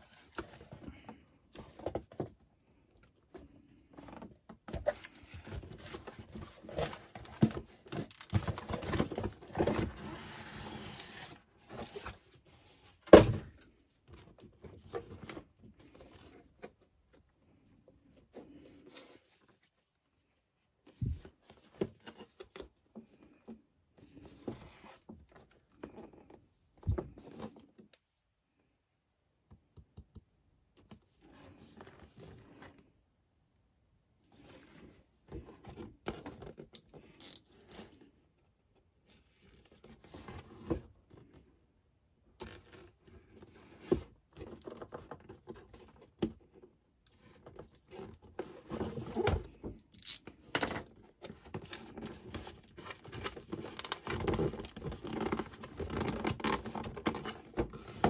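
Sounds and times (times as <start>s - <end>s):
cardboard rustling and crinkling: 0.0s - 19.9s, 42.4s - 58.0s.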